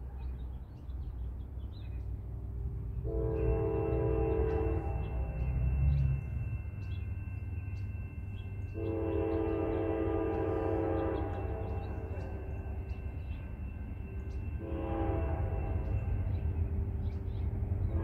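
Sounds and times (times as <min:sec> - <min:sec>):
train air horn chord: 0:03.0 - 0:05.7, 0:08.7 - 0:12.6, 0:14.6 - 0:16.4, 0:17.8 - 0:18.0.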